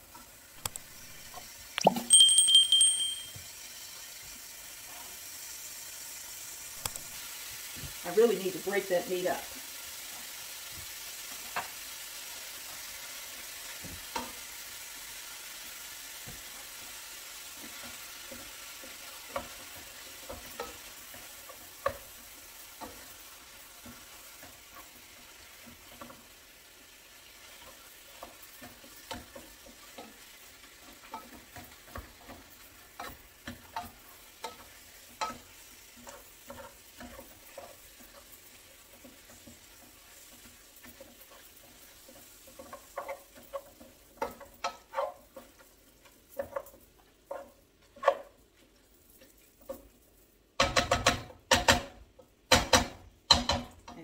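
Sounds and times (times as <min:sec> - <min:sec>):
meat sizzling in a pot: 0:00.0 - 0:54.0
utensil knocking and scraping pot: 0:27.2 - 0:48.4, 0:50.6 - 0:54.0.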